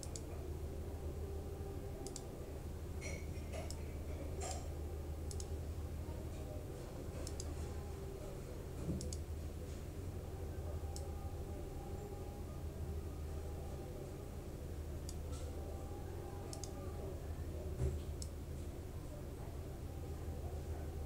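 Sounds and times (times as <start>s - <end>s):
computer mouse clicking: 0.0s - 0.3s, 2.0s - 2.3s, 5.3s - 5.5s, 7.2s - 7.6s, 9.0s - 9.3s, 15.0s - 15.3s, 16.5s - 16.8s
steady low hum: 0.0s - 21.0s.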